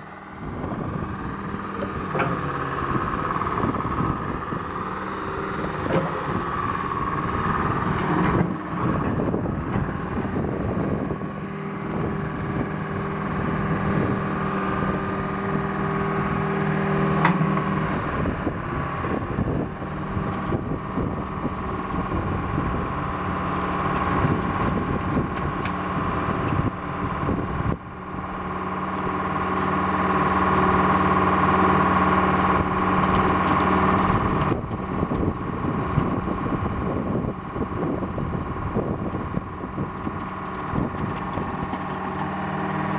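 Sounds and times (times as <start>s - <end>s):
excavator engine under load: 0.0s - 42.9s
knocks and clanks: 17.2s - 17.7s.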